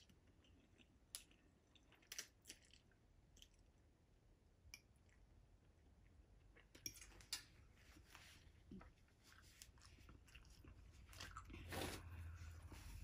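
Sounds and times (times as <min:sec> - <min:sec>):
person chewing noodles: 0:00.0 - 0:03.9, 0:08.8 - 0:12.5.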